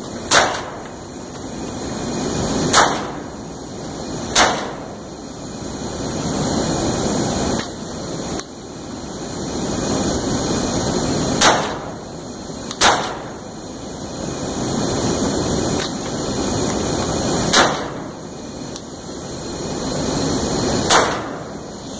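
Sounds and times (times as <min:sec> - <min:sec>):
steady rushing noise: 0:00.0 - 0:21.9
shotgun shots: 0:00.3 - 0:00.8, 0:02.7 - 0:03.2, 0:04.4 - 0:04.8, 0:11.4 - 0:11.9, 0:12.8 - 0:13.3, 0:17.5 - 0:18.1, 0:20.9 - 0:21.4.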